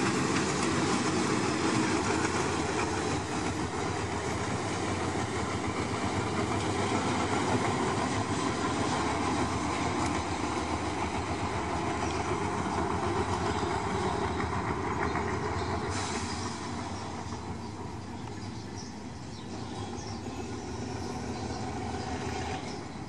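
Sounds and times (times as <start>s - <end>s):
wheels clicking over rail joints: 0.0s - 15.9s
locomotive engine running: 0.0s - 23.0s.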